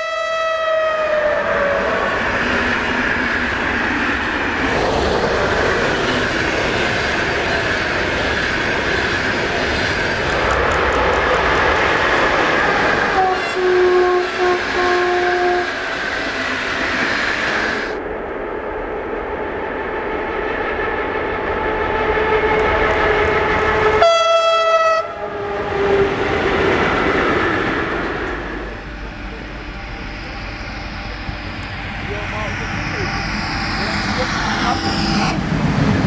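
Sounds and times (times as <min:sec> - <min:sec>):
train horn blasts: 0:00.0 - 0:01.4, 0:13.0 - 0:15.9, 0:22.1 - 0:26.1
train rumbling on rails: 0:00.0 - 0:36.0.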